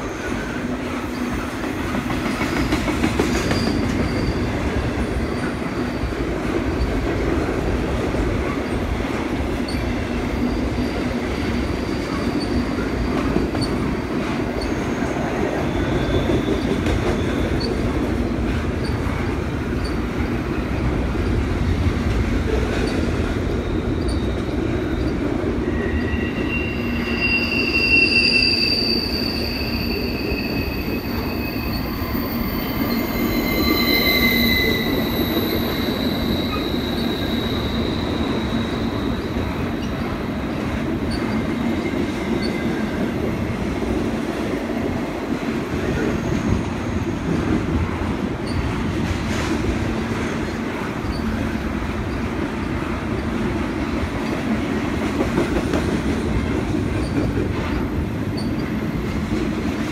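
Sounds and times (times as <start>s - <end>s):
train wheels rumbling on rail: 0.0s - 59.9s
high-pitched wheel squeals: 3.4s - 6.2s, 11.6s - 17.9s, 22.8s - 40.2s.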